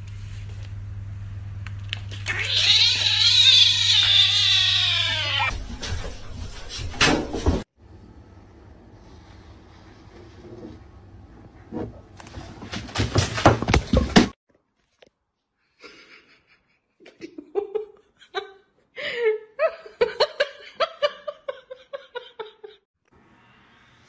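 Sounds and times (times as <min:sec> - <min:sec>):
person laughing: 0:15.8 - 0:22.8.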